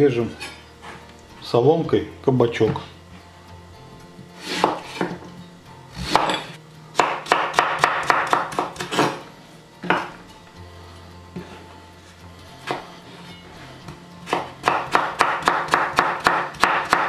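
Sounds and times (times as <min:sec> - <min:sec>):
knife chopping on bamboo board: 0:04.5 - 0:05.2, 0:06.0 - 0:06.4, 0:07.0 - 0:09.2, 0:12.6 - 0:12.9, 0:14.2 - 0:17.0.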